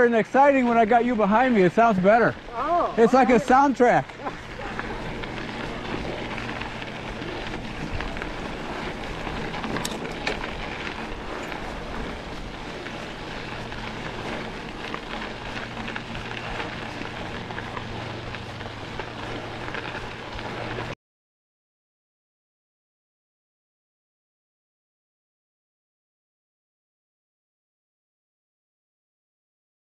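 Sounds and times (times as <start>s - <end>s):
mountain bike tyres on dirt: 0.0s - 21.0s.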